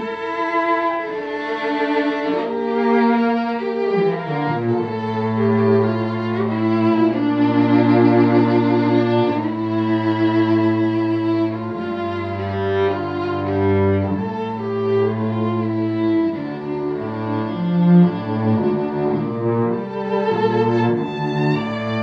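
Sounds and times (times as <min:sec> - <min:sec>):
cello low held notes: 0:00.0 - 0:22.0
violin melody: 0:00.0 - 0:22.0.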